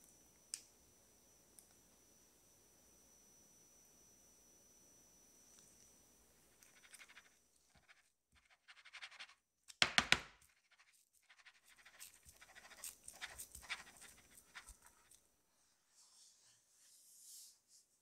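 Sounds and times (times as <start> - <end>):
sharp knocks on wooden board: 9.8 - 10.4.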